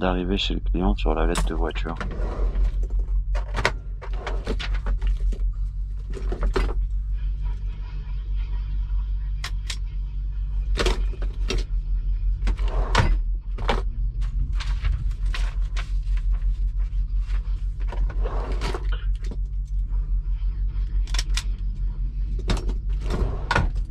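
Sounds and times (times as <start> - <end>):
steady low hum: 0.0 - 23.9
paper handling: 14.2 - 19.0.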